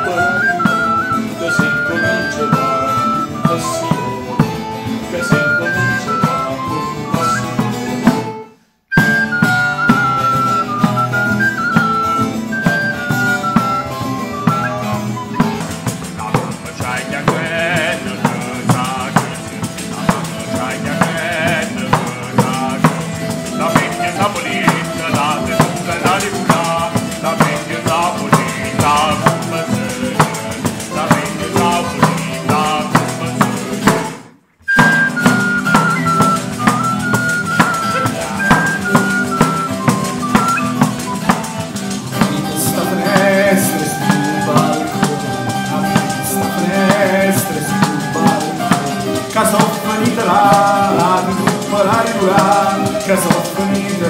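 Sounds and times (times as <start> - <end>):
mandolin: 0.0 - 54.0
strummed guitar: 0.0 - 54.0
wooden flute melody: 0.0 - 54.0
tambourine beating rhythm: 9.0 - 54.0.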